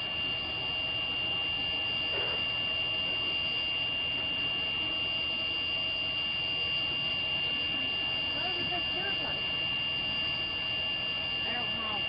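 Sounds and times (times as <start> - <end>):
high-pitched electronic whine: 0.0 - 12.0.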